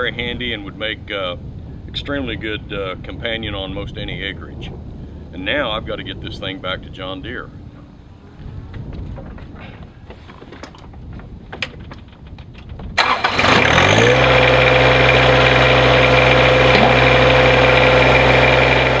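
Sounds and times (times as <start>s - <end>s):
light clicks and knocks: 8.7s - 13.0s
diesel tractor engine starting: 13.0s - 19.0s.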